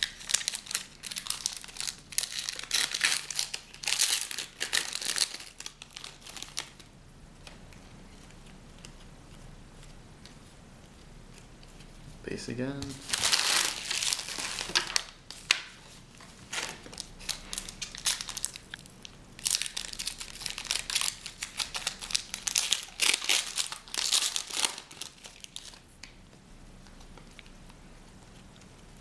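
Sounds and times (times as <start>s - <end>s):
foil wrappers crinkling and tearing: 0.0s - 6.9s, 12.8s - 15.7s, 16.4s - 25.9s.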